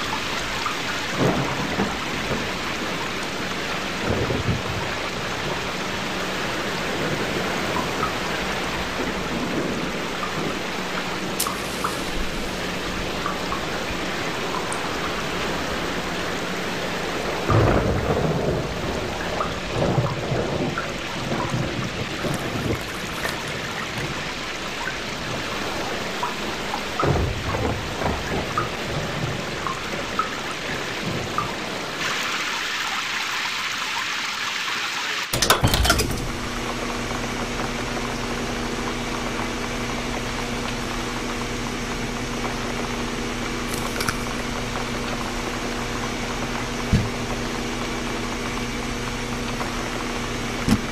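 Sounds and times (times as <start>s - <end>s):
thunder rumbles: 0.0s - 32.0s, 35.4s - 50.9s
steady rain: 0.0s - 50.9s
humming drone: 35.4s - 50.9s.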